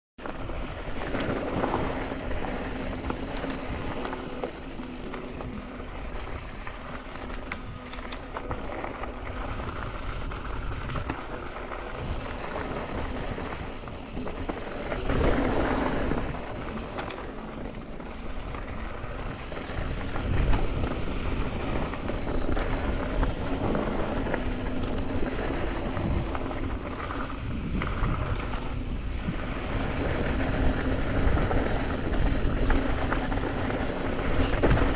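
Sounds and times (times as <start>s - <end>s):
bike rattling over bumps: 0.2s - 34.9s
tyres crunching over gravel: 0.2s - 34.9s
wind on microphone: 9.2s - 17.2s, 19.1s - 34.9s.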